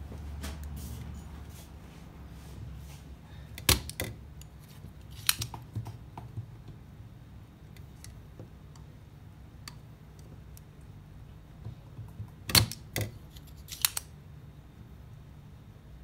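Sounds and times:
desoldering pump snapping: 0:03.5 - 0:06.0, 0:12.5 - 0:14.1.

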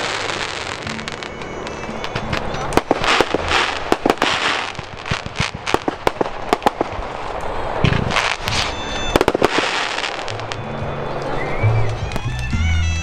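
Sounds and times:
fireworks hiss: 0:00.0 - 0:11.1
fireworks bangs and crackles: 0:00.0 - 0:12.5.

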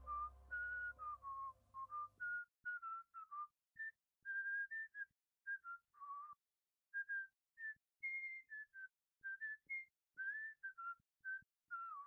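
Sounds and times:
person whistling a tune: 0:00.0 - 0:06.4, 0:07.0 - 0:12.0.

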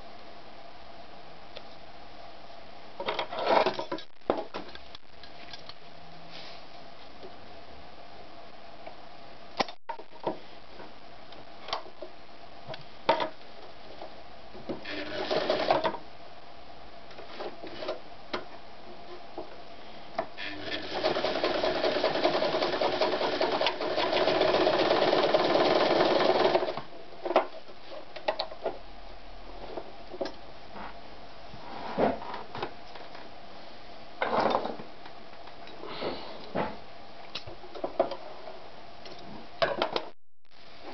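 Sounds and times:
sewing machine stitching: 0:14.8 - 0:16.0, 0:20.4 - 0:26.8.

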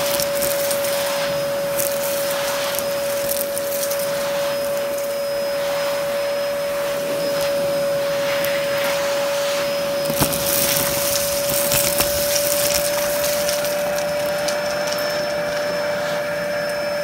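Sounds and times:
vacuum cleaner running: 0:00.0 - 0:17.0.

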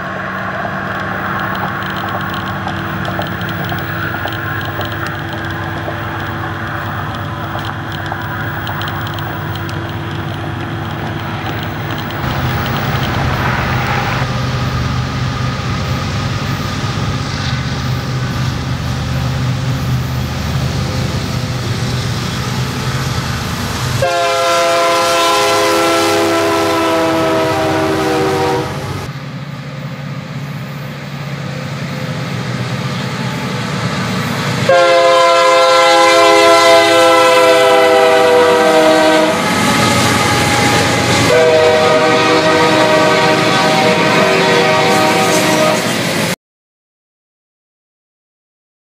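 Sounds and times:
diesel locomotives rumbling: 0:00.0 - 0:46.4
multi-note train air horn: 0:24.0 - 0:29.1, 0:34.6 - 0:46.0.

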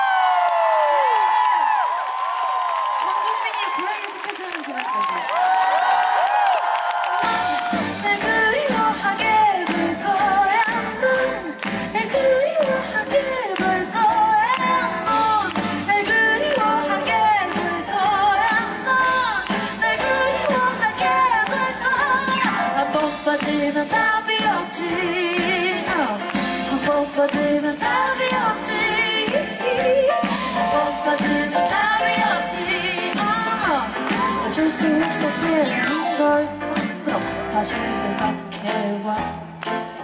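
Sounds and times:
live band playing: 0:07.0 - 0:40.0.

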